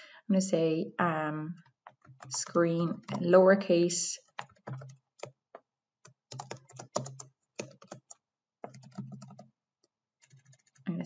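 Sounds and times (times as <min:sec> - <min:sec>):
typing on computer keyboard: 0:01.9 - 0:03.3, 0:04.2 - 0:05.4, 0:06.0 - 0:09.5, 0:10.2 - 0:10.8.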